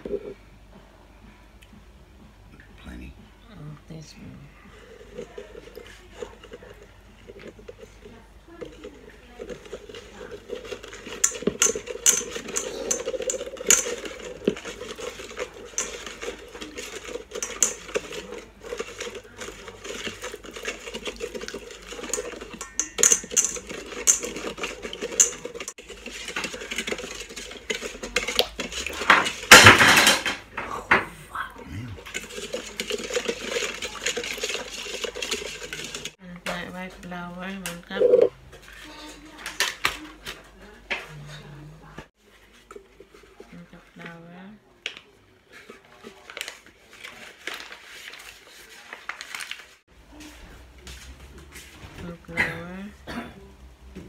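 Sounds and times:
metal spoon clinking in bowl: 0:22.0 - 0:25.7.

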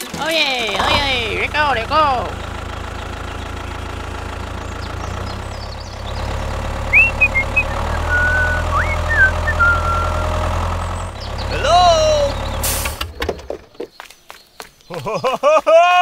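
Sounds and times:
tractor engine running: 0:00.0 - 0:14.0
high chirps and whistles: 0:06.9 - 0:10.4.

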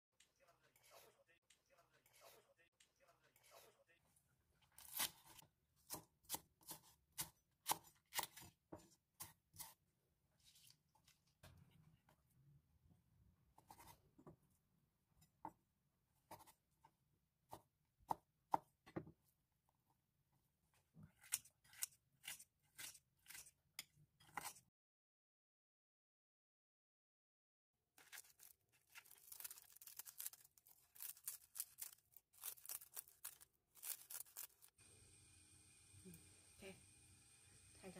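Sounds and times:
knife chopping on wooden board: 0:05.9 - 0:08.5.

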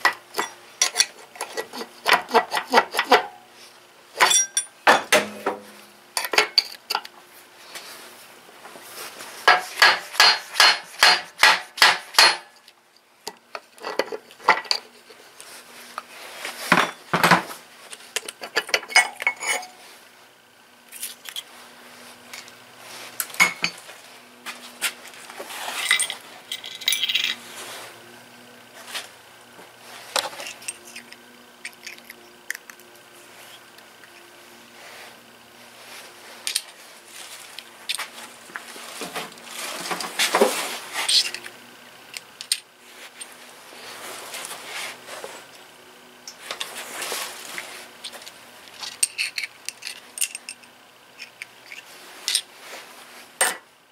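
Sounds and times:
metal tools clinking: 0:00.3 - 0:01.6, 0:04.2 - 0:05.4, 0:18.2 - 0:19.8, 0:25.7 - 0:27.4, 0:48.8 - 0:52.4.

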